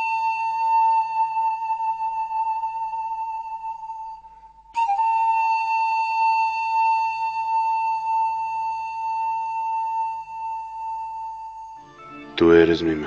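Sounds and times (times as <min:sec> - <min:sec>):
high flute-like note: 0:04.8 - 0:13.0.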